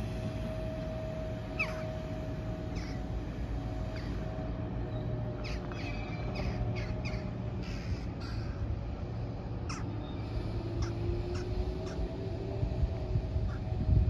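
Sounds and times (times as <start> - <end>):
birds calling: 1.6 - 1.9, 2.8 - 3.2, 3.9 - 4.3, 5.4 - 8.7.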